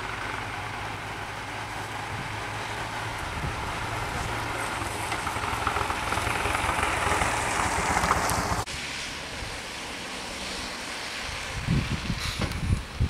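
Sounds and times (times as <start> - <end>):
nearby vehicles passing: 0.0 - 13.0
wind buffeting microphone: 0.4 - 8.7, 11.2 - 13.0.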